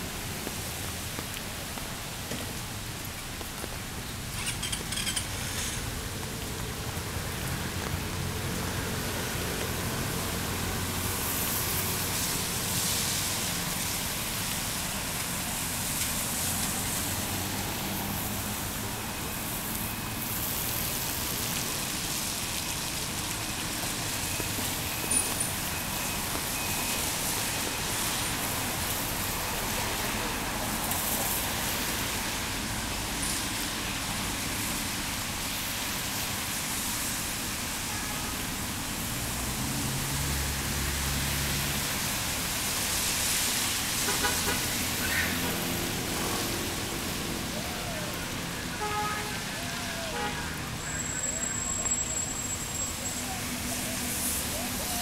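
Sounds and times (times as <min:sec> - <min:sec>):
tyre hiss on wet road: 0:00.0 - 0:55.0.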